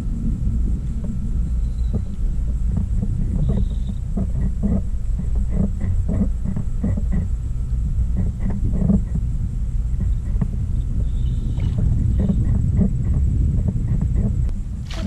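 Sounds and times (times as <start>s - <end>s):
water lapping against hull: 0.0s - 15.0s
wind rumbling on microphone: 0.0s - 15.0s.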